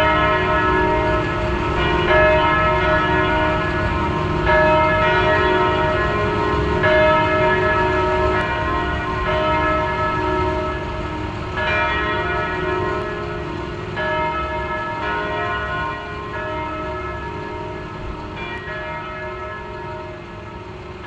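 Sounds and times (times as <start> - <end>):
church bell tolling: 0.0 - 21.0.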